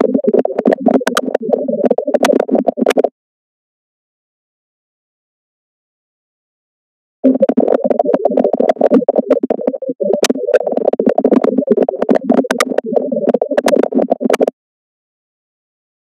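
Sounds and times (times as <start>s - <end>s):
scratchy crackling electronic sound: 0.0s - 3.1s, 7.2s - 14.5s.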